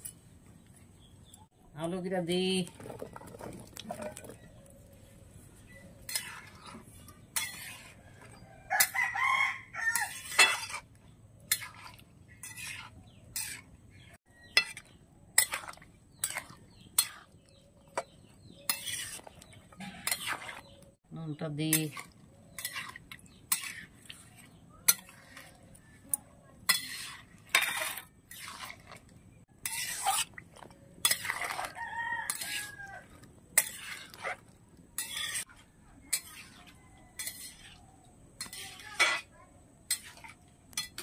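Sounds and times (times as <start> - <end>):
metal spatula scraping a pan: 5.9 - 9.0, 9.8 - 20.8, 21.7 - 41.0
rooster crowing: 8.2 - 10.2, 31.7 - 33.1.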